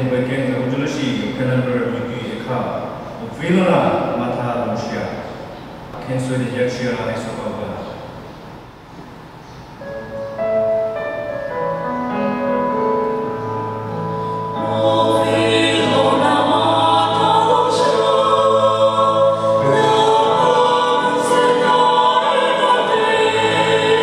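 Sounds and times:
electronic keyboard chords: 0:09.7 - 0:24.0
choir singing a hymn: 0:13.4 - 0:24.0.

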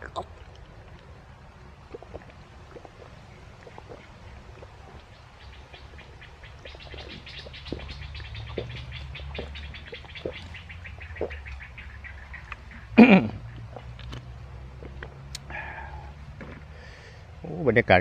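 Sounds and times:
gulping water from plastic bottle: 0:00.0 - 0:16.8
rapid chirping trill: 0:04.9 - 0:12.9.

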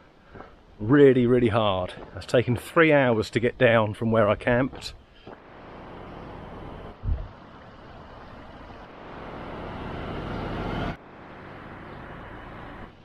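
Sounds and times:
outdoor rushing noise: 0:04.7 - 0:13.0.

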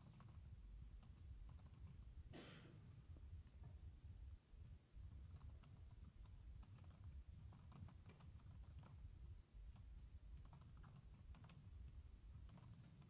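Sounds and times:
typing on computer keyboard: 0:00.0 - 0:02.0, 0:05.2 - 0:09.0, 0:09.7 - 0:13.0
low background rumble: 0:00.0 - 0:13.0.

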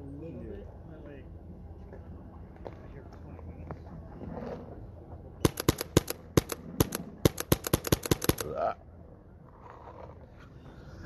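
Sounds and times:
paintball marker shots: 0:05.4 - 0:08.5.

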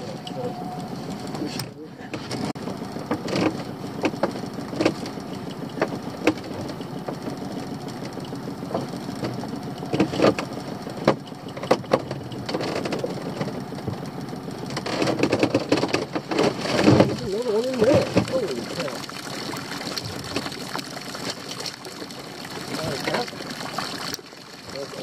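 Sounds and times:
small boat engine idling: 0:00.0 - 0:25.0.

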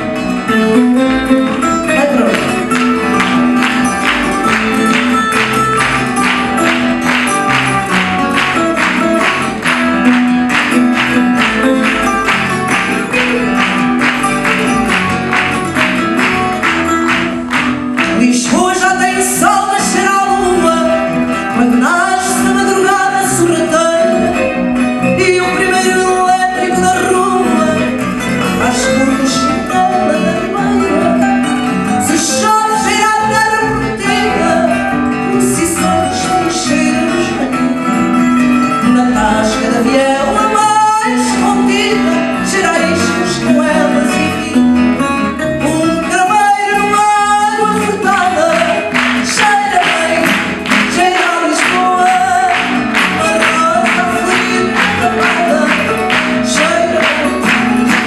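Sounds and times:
plucked guitars: 0:00.0 - 0:58.0
woman singing: 0:18.0 - 0:38.2, 0:38.8 - 0:58.0.

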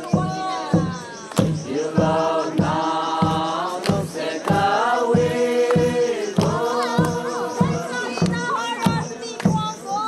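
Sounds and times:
group chanting: 0:00.0 - 0:09.3.

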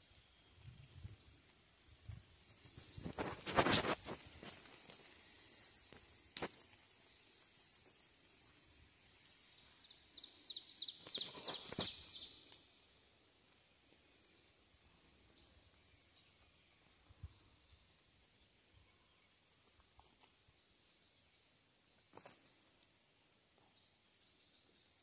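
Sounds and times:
songbird chirping: 0:00.0 - 0:25.0
footsteps and rustling on leaves: 0:00.2 - 0:09.9, 0:11.0 - 0:12.6, 0:22.1 - 0:23.0.

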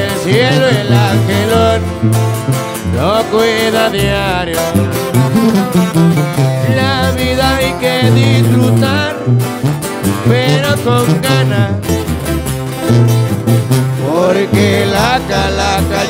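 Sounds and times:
man singing: 0:00.0 - 0:01.9, 0:02.8 - 0:05.5, 0:06.4 - 0:09.3, 0:10.2 - 0:11.9, 0:14.0 - 0:16.0
strummed acoustic guitars: 0:00.0 - 0:16.0
tuba bass line: 0:00.0 - 0:16.0.

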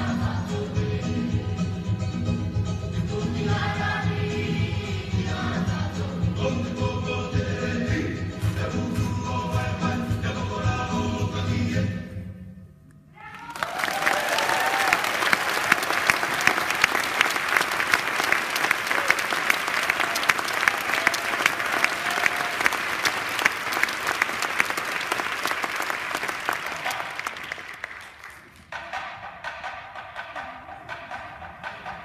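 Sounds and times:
music: 0:00.0 - 0:13.2, 0:25.7 - 0:32.0
audience clapping: 0:13.3 - 0:28.8.

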